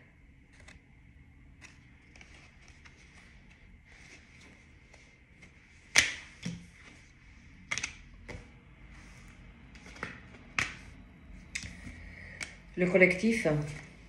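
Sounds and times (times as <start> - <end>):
cards slapping on table: 5.9 - 6.7, 9.8 - 10.9.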